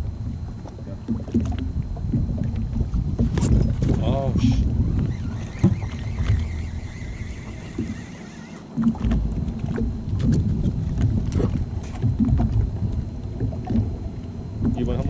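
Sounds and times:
waves slapping a hull: 0.0s - 15.0s
wind buffeting microphone: 0.0s - 15.0s
knocks and thumps: 0.6s - 4.0s, 5.0s - 6.7s, 7.7s - 8.1s, 8.8s - 12.7s.

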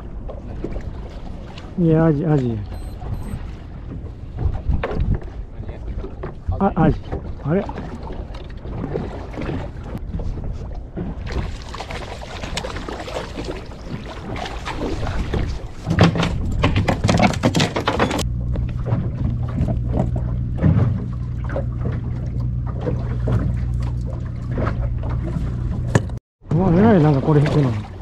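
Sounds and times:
boat engine running: 2.1s - 28.0s.

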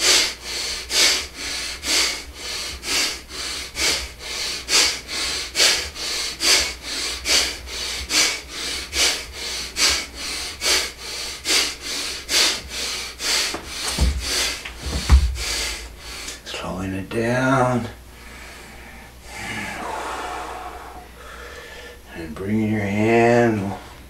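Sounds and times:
rapid forceful breathing: 0.0s - 16.5s, 18.0s - 22.1s
low thump: 13.9s - 15.5s.

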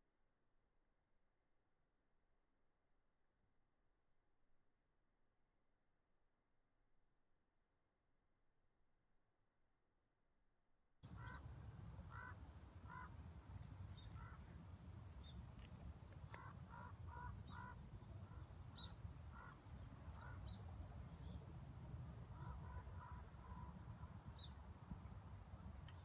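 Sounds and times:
ravens croaking: 11.1s - 13.2s, 14.0s - 14.6s, 16.2s - 20.6s, 22.2s - 24.2s.

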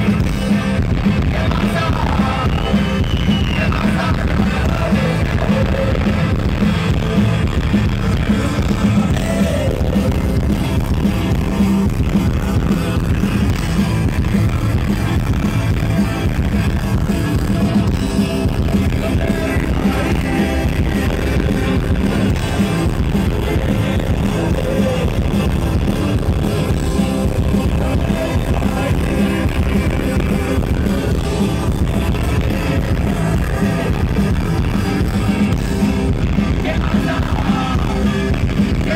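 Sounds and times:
man singing: 0.0s - 7.2s, 8.0s - 11.4s, 18.5s - 38.9s
rock band playing live: 0.0s - 38.9s.

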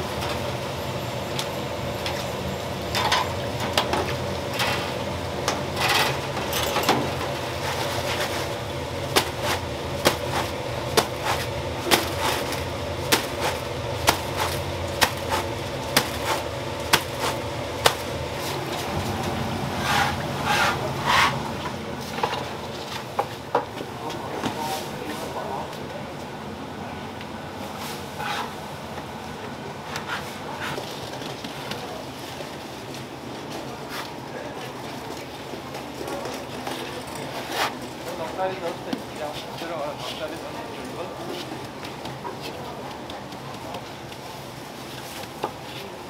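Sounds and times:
steady background hum: 0.0s - 46.0s
metal tongs clinking on fryer: 5.8s - 7.2s.

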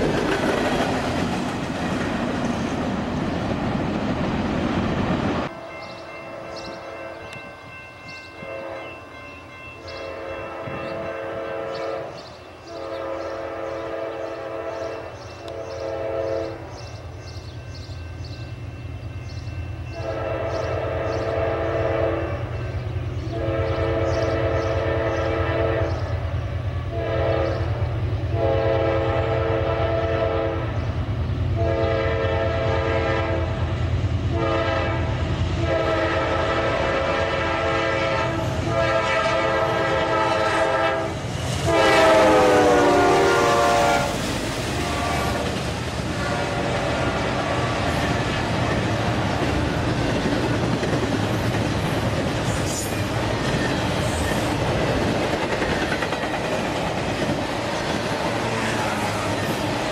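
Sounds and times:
train air horn blasts: 8.4s - 9.0s, 9.9s - 16.6s, 19.9s - 22.6s, 23.3s - 26.2s, 26.8s - 30.8s, 31.6s - 33.7s, 34.3s - 45.5s, 46.1s - 47.9s
diesel locomotive engines running: 9.6s - 59.9s.

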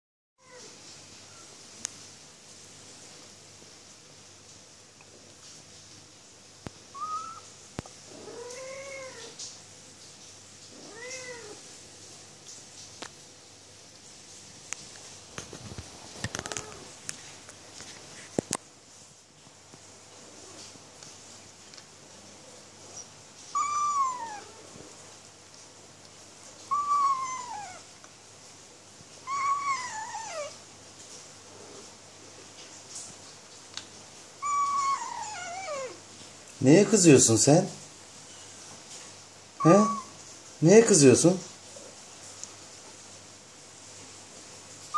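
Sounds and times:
kitten meowing: 6.9s - 7.5s, 8.1s - 9.4s, 10.8s - 11.6s, 16.3s - 16.9s, 23.5s - 24.7s, 26.7s - 27.9s, 29.2s - 30.6s, 34.4s - 36.0s, 39.6s - 40.1s
kitten rising chirp: 7.0s - 7.5s, 23.5s - 24.6s, 26.7s - 27.8s, 29.3s - 30.5s, 34.4s - 36.0s, 39.6s - 40.1s.

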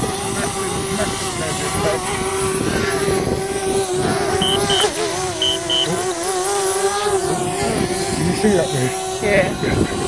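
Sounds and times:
wind on microphone: 0.0s - 6.3s, 7.0s - 10.0s
drone propellers whining: 0.0s - 10.0s
short high beeps: 4.4s - 5.9s.

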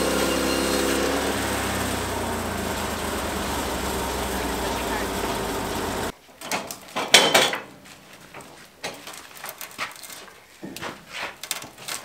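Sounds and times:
log knocks and metallic clanks: 6.4s - 12.0s.

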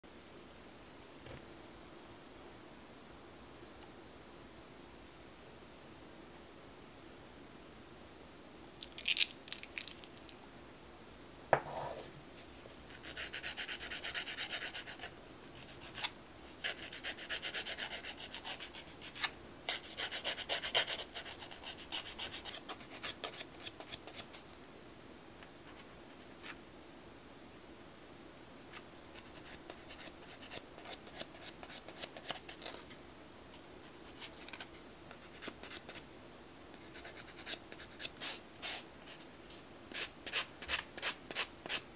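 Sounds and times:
nail file rasping on fingernail: 13.0s - 24.2s.

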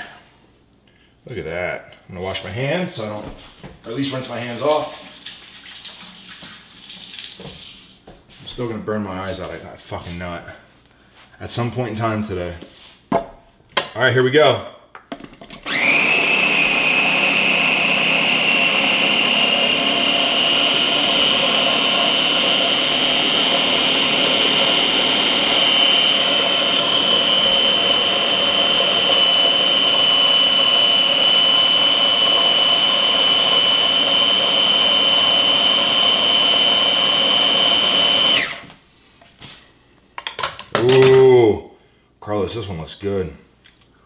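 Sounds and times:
food chopper motor whining: 15.6s - 38.8s.

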